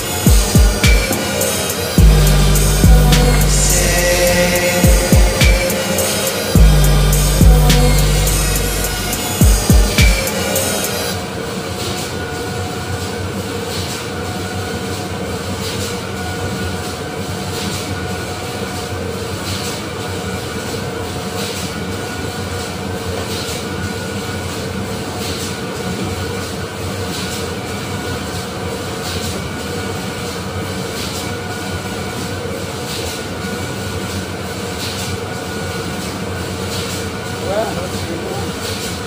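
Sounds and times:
factory machinery rumbling: 0:00.0 - 0:14.2.

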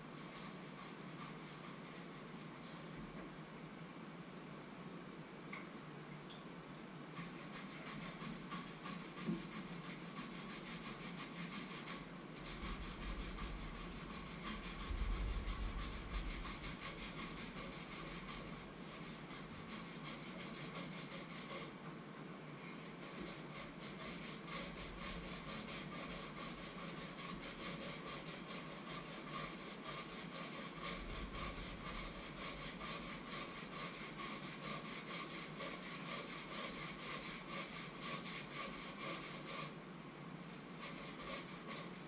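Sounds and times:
potato peeling scrapes: 0:07.2 - 0:21.7, 0:22.8 - 0:39.7, 0:40.8 - 0:42.0.

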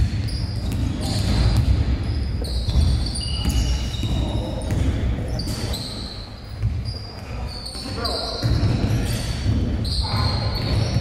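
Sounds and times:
sneakers squeaking: 0:00.0 - 0:11.0.

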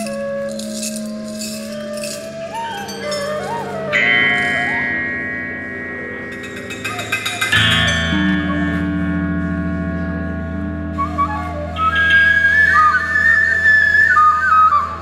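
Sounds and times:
struck metal chord ringing: 0:00.0 - 0:11.0
low sustained drone: 0:00.0 - 0:15.0
high whistle-like note: 0:10.9 - 0:15.0.

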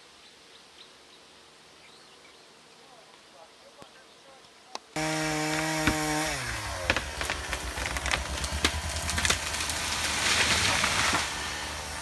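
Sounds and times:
chainsaw engine running: 0:05.0 - 0:12.0.

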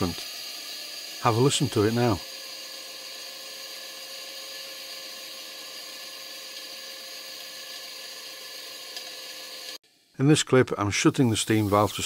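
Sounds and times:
model steam engine running: 0:00.0 - 0:09.8, 0:11.2 - 0:12.0.

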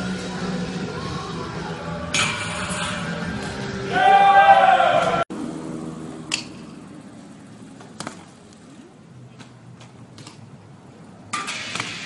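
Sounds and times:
bike clicks and knocks on concrete: 0:06.0 - 0:12.0.

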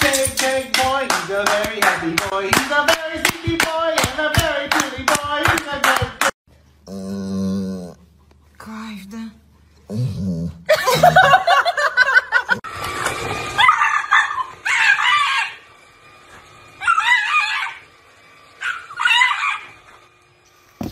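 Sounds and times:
dog moaning calls: 0:06.8 - 0:08.1
stick vacuum whine: 0:12.7 - 0:20.9
dog yelping barks: 0:13.6 - 0:15.6, 0:16.8 - 0:17.8, 0:18.6 - 0:19.8.

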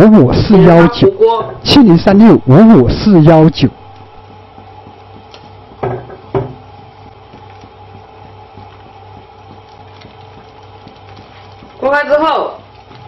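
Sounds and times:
chopsticks knocking on clay pot: 0:04.2 - 0:11.0.

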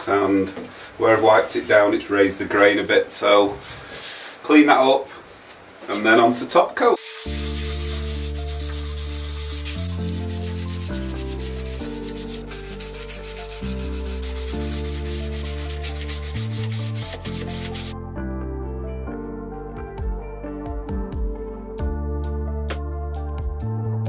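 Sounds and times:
sandpaper rasping on wood: 0:07.0 - 0:18.0
soft background music: 0:07.0 - 0:24.0.

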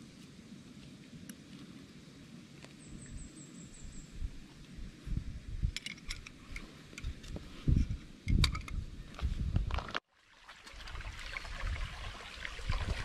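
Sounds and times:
wind buffeting microphone: 0:02.9 - 0:10.0, 0:11.5 - 0:13.0.

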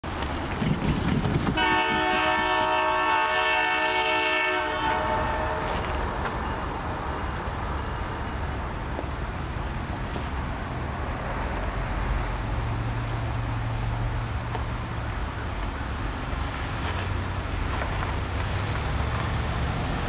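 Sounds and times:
train low rumble: 0:00.0 - 0:20.0
locomotive air horn blast: 0:01.6 - 0:05.9.

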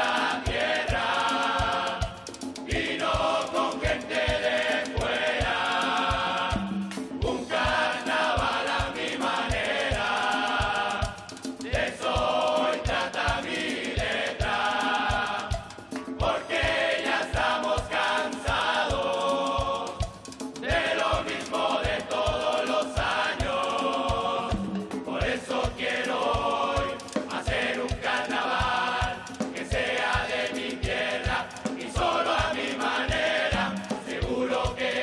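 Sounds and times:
bass drum beat: 0:00.0 - 0:35.0
chorus singing in unison: 0:00.0 - 0:35.0.

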